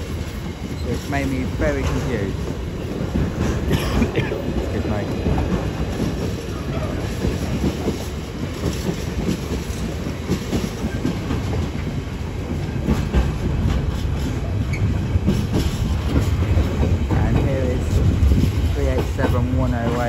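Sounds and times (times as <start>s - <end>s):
freight train rumbling: 0.0s - 20.0s
wheels clicking over rail joints: 0.1s - 20.0s.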